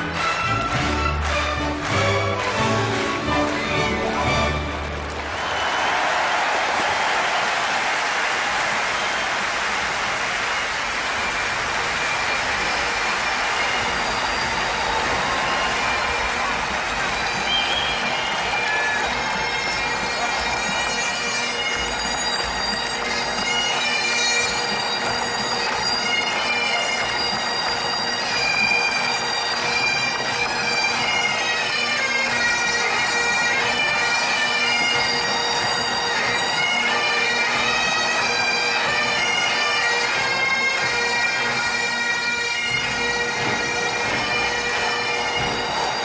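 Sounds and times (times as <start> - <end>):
bagpipes playing over drone: 10.4 - 46.0.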